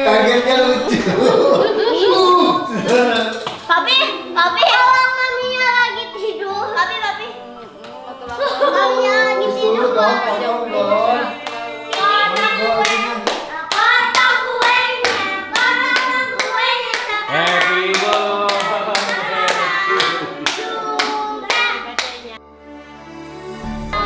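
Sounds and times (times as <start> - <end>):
voices singing together: 7.3 - 22.4
hands clapping in a beat: 11.4 - 22.3.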